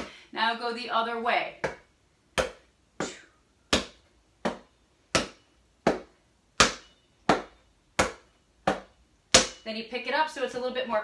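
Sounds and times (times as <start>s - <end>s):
hands slapping a basketball: 1.6s - 9.6s.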